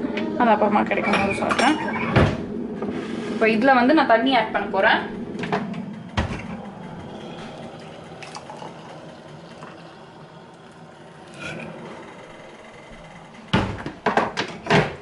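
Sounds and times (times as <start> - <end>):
water pouring into mug: 7.0 - 11.4.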